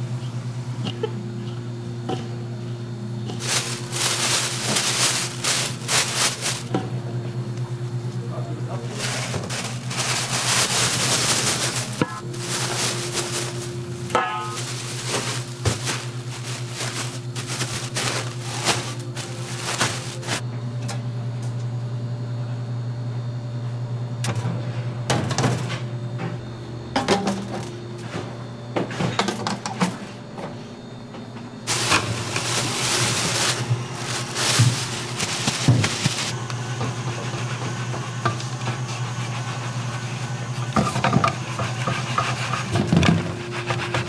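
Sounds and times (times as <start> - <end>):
steady low hum: 0.0 - 25.2, 29.9 - 44.0
plastic bag rustling: 3.3 - 6.8, 8.8 - 20.4, 31.7 - 36.4.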